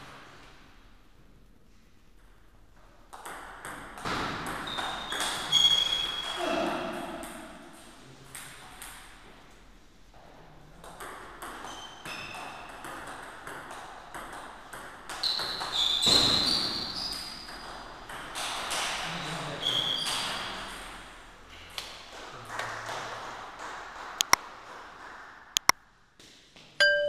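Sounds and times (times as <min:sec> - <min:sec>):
table tennis ball clicking: 0:25.6 - 0:25.8.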